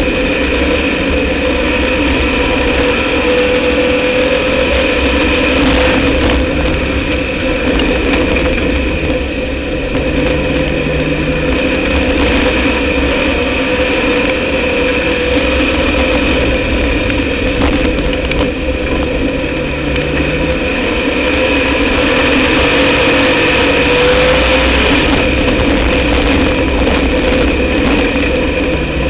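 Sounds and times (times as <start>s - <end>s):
race car engine running: 0.0s - 29.0s.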